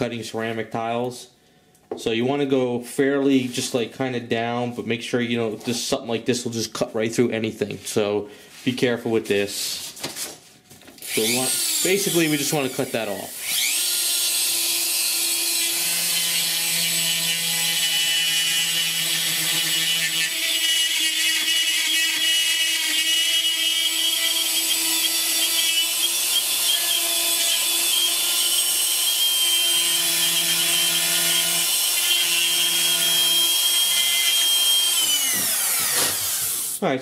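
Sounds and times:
rotary tool whining and grinding: 0:11.0 - 0:36.8.

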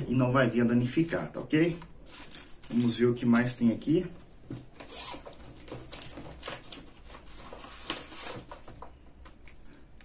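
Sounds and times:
packaging rustling: 0:01.6 - 0:03.7, 0:04.3 - 0:09.4.

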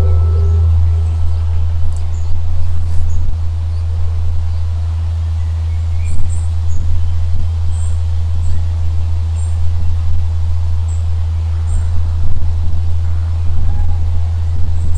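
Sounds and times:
bird chirps: 0:00.0 - 0:03.8
steady low rumble: 0:00.0 - 0:14.9.

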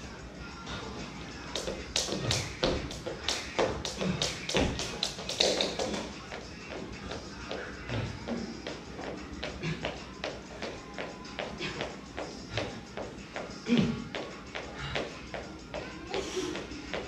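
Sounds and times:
background music: 0:00.0 - 0:17.0
feet landing: 0:01.6 - 0:06.1
jump ropes slapping floor: 0:01.6 - 0:06.1.

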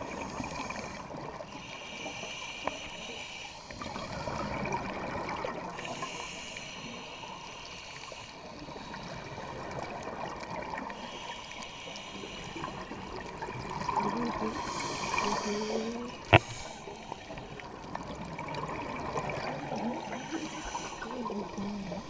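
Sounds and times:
regulator breathing bubbles underwater: 0:10.9 - 0:17.8, 0:18.7 - 0:22.0.

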